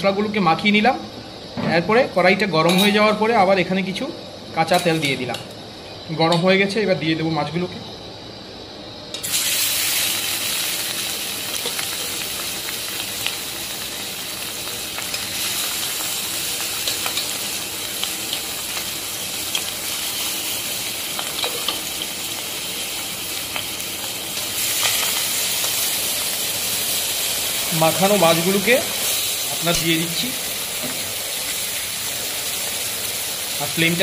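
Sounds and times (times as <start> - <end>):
fish sizzling in hot oil: 9.1 - 34.0.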